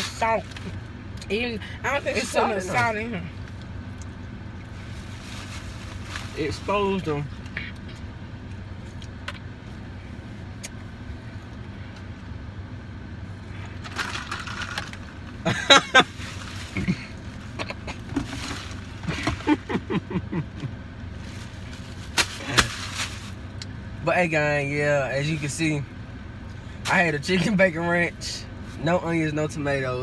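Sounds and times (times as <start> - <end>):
car engine idling: 0.0 - 30.0.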